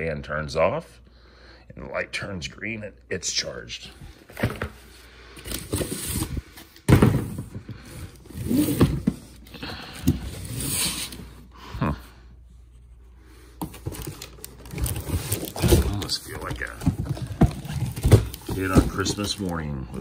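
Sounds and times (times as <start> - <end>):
cardboard scraping and rustling: 4.2 - 11.4, 13.6 - 20.0.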